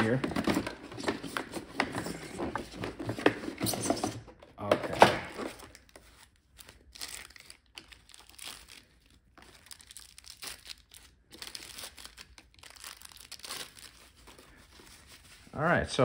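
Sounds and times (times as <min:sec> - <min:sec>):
plastic packaging crinkling: 0:05.4 - 0:15.4.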